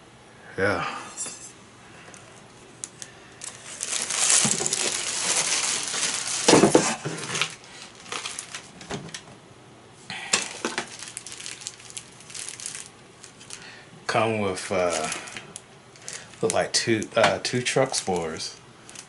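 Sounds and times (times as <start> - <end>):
plastic bags crinkling: 2.8 - 9.2, 10.3 - 13.8, 14.6 - 19.0.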